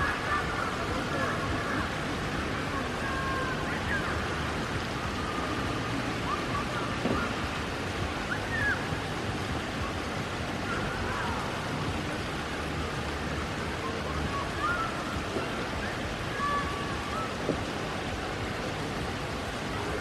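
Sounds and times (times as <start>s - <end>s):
rain on wet pavement: 0.0s - 13.4s.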